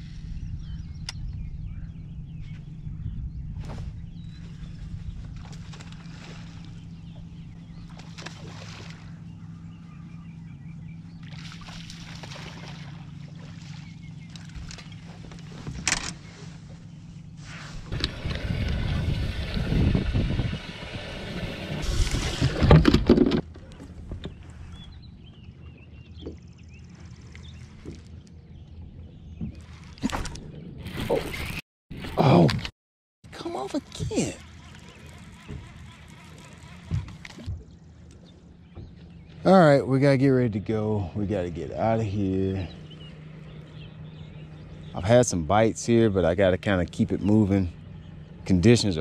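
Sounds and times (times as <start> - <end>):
electric trolling motor hum: 0.1 - 31.6, 33.3 - 49.0
water splashing and sloshing: 3.6 - 9.6, 11.0 - 32.7, 33.3 - 39.5.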